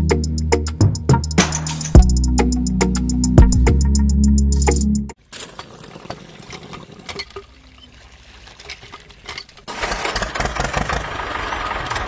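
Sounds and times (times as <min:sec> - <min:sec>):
engine-like motor noise: 0:09.7 - 0:12.0.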